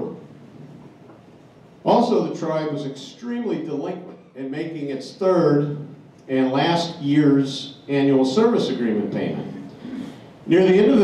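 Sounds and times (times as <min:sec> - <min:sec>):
man speaking over microphone: 0:01.8 - 0:09.6, 0:10.5 - 0:11.0.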